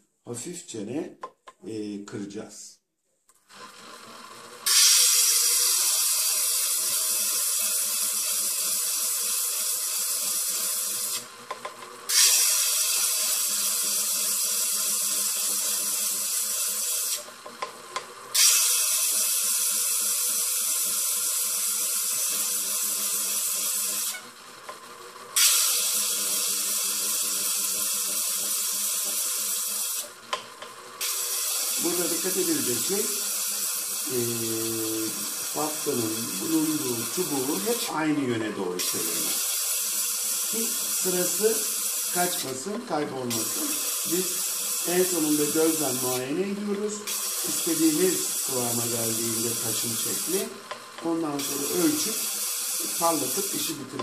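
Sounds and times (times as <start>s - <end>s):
stone grinding on spinning lap: 3.5s - 24.8s.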